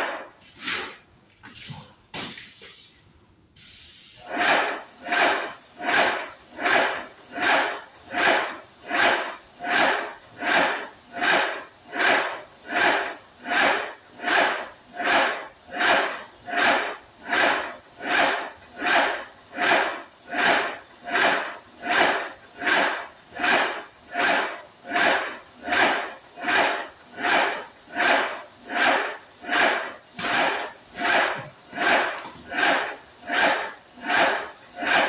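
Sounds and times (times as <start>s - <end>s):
paint spray gun hissing: 3.6s - 35.0s
piston pump strokes: 4.2s - 35.0s.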